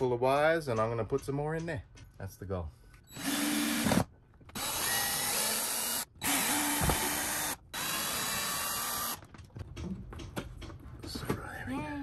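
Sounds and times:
cordless drill running: 3.1s - 9.2s.

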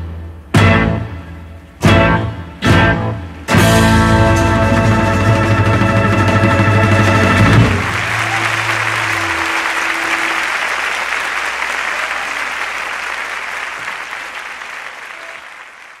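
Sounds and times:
audience applause: 7.1s - 16.0s.

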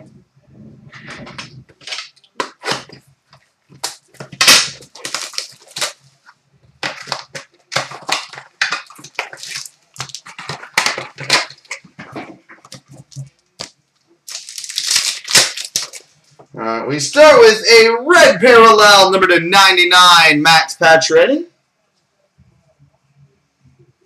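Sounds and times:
cards being handled: 1.0s - 6.0s, 6.8s - 16.2s
plastic wrapping crinkling and tearing: 1.1s - 16.4s.

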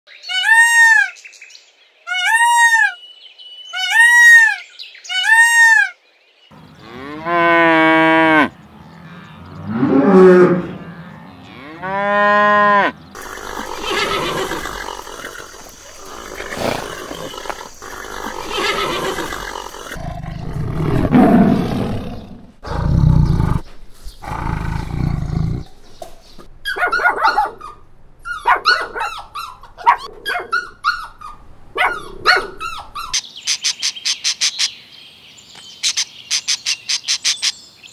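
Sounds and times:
peacock calling: 0.1s - 1.3s, 2.0s - 6.0s, 12.8s - 20.0s, 25.8s - 34.7s
long drawn-out animal calls: 13.1s - 20.0s
small dogs yapping: 26.6s - 33.2s.

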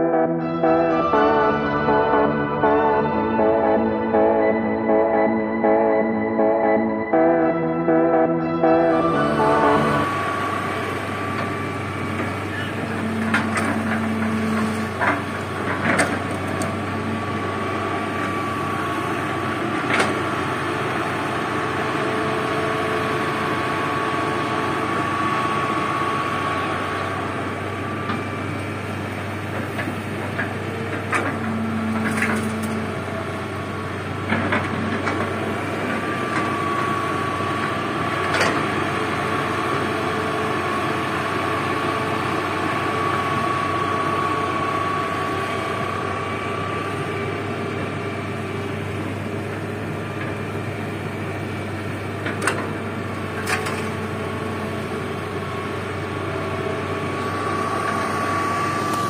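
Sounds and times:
diesel engine under load: 0.0s - 59.0s
thin high whine: 0.4s - 15.0s.

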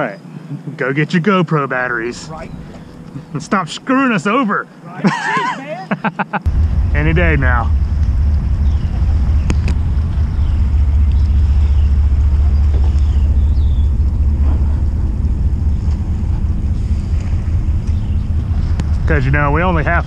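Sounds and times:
boat motor rumbling: 1.8s - 4.9s, 6.5s - 20.0s
wind on microphone: 2.0s - 3.8s, 6.5s - 20.0s.

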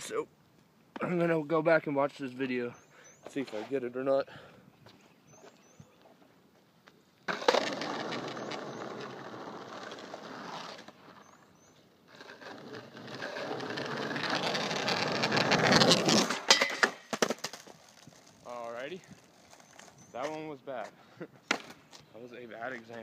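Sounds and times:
skateboard rolling on asphalt: 7.2s - 20.1s.

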